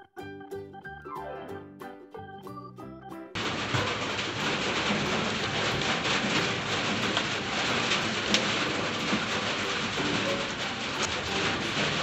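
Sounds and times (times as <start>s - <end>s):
steady rushing noise: 3.4s - 12.0s.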